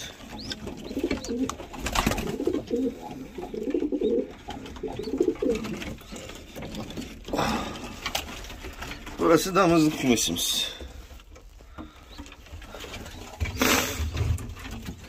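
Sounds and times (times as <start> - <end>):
pigeons cooing: 0.0 - 8.3.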